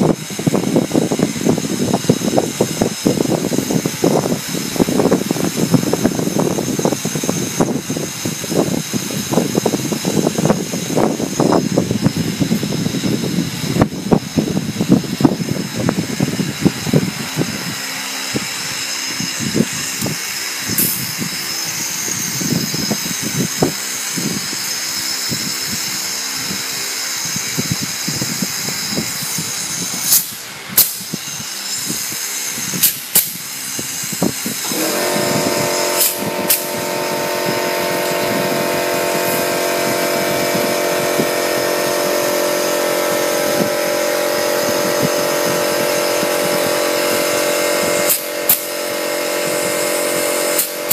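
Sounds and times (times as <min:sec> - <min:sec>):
machine drone: 0:00.0 - 0:50.9
pneumatic clip gun clicks: 0:18.3 - 0:36.8, 0:42.2 - 0:50.9.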